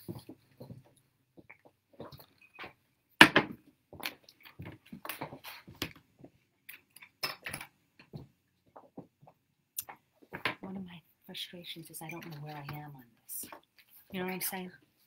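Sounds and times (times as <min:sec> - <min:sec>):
small objects clicking and clinking: 0:06.6 - 0:08.1.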